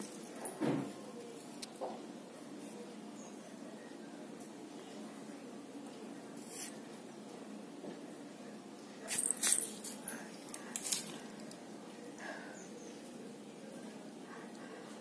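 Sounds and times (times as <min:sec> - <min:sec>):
scratchy rustles and scrapes: 0:06.4 - 0:06.8.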